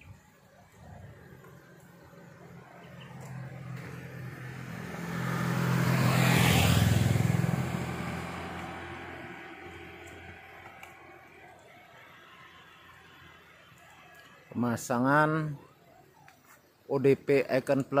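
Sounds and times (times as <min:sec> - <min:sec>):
vehicle engine passing by: 0:00.8 - 0:11.6.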